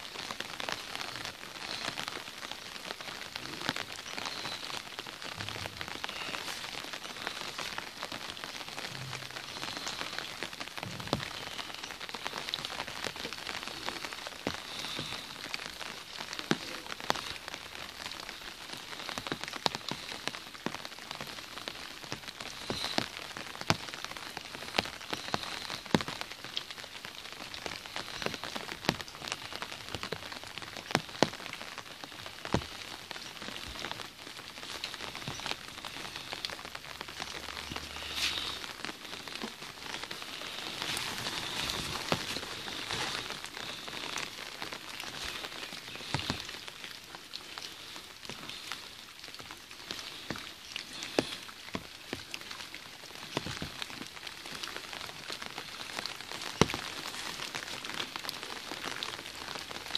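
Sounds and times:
rain pattering on umbrella: 0:00.0 - 0:59.9.

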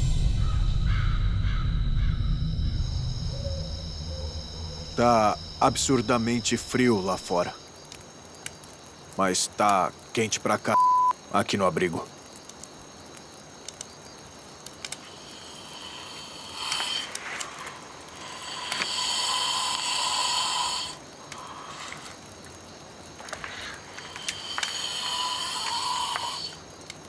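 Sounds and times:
man snoring loudly: 0:15.2 - 0:22.1, 0:24.0 - 0:26.6.

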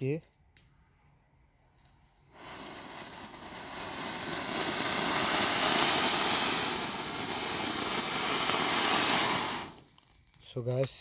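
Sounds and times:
firework fountain hissing: 0:02.3 - 0:10.0.

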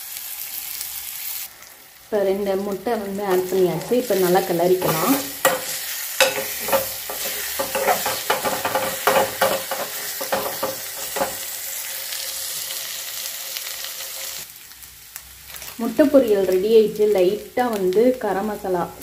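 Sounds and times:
eggs sizzling in oil: 0:00.0 - 0:19.0
steel spoon scraping a pan: 0:03.3 - 0:13.0.

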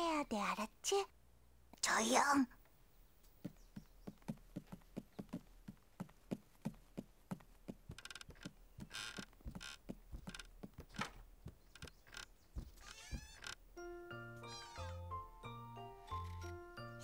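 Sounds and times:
light footsteps on wooden stairs: 0:02.6 - 0:13.8.

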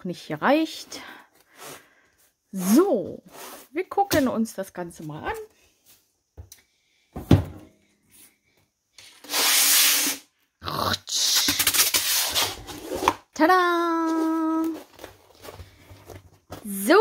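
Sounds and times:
rubbing and scraping: 0:11.2 - 0:13.2.

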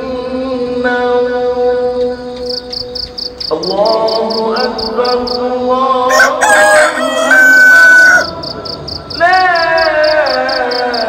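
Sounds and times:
insects chirping: 0:00.0 - 0:11.0
rooster crowing: 0:06.1 - 0:08.5.

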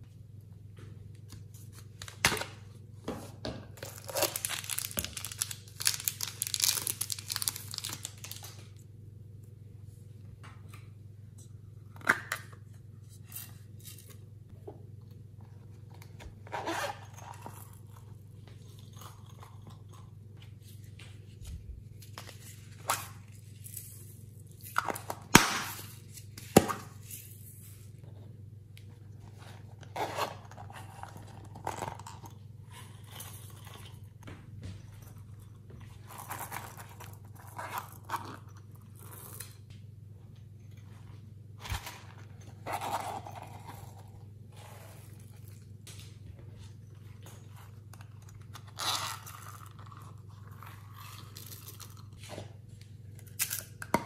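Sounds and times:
packaging crinkling: 0:03.8 - 0:08.6.

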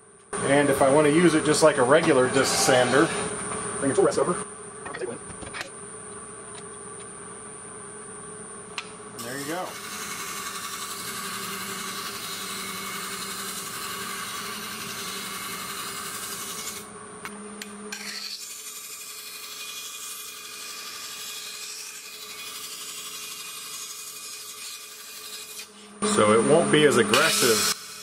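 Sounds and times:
wood sanding rasp: 0:02.0 - 0:03.3, 0:27.1 - 0:28.0.

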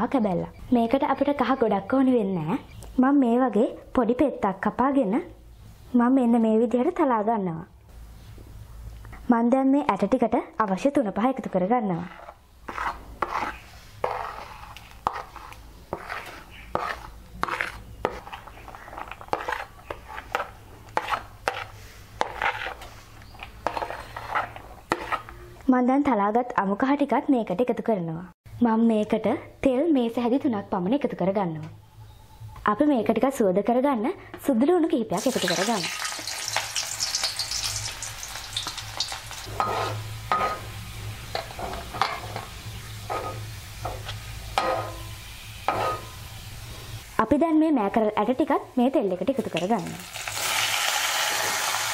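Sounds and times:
garlic sizzling in oil: 0:10.8 - 0:25.3, 0:35.2 - 0:47.3, 0:49.2 - 0:51.9
spoon scraping: 0:11.3 - 0:25.4, 0:35.3 - 0:46.2.

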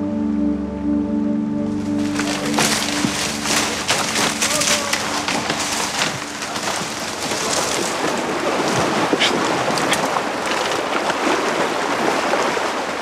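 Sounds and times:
brush snapping and rustling: 0:01.8 - 0:11.2
river water rushing: 0:01.8 - 0:13.0.

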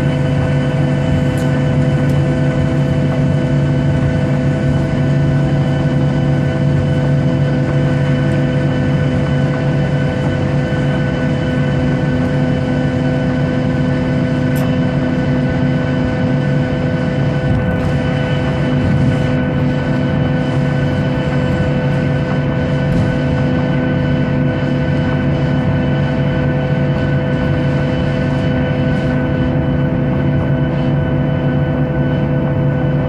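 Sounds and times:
jet engines droning in cabin: 0:00.0 - 0:33.0.

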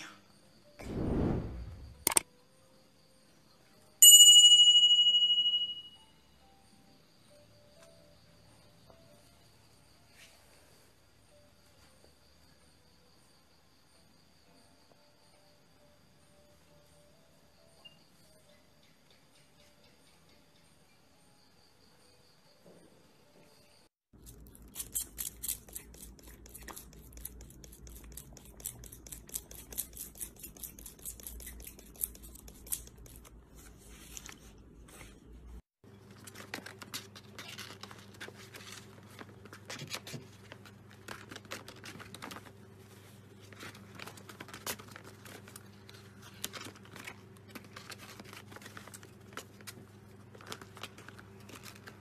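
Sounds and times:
paper crinkling and rustling: 0:35.9 - 0:52.0.

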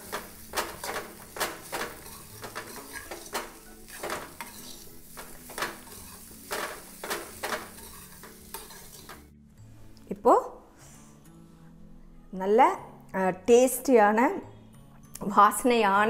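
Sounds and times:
metal spoon stirring in steel pan: 0:00.0 - 0:09.3.

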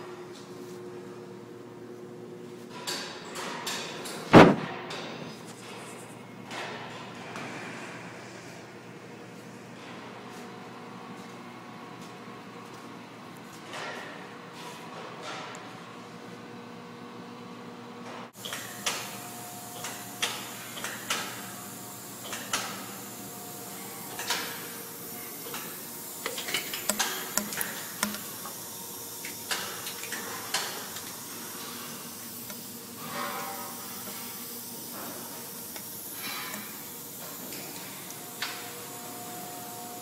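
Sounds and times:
machinery hum: 0:18.4 - 0:40.0.

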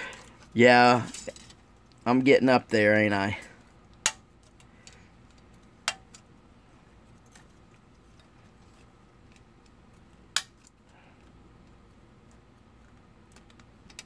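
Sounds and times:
sharp plastic clicks: 0:13.0 - 0:14.0.

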